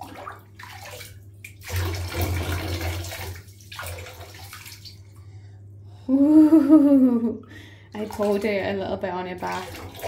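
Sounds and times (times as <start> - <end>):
water splashing into bathwater: 0.0 - 5.2, 7.9 - 10.0.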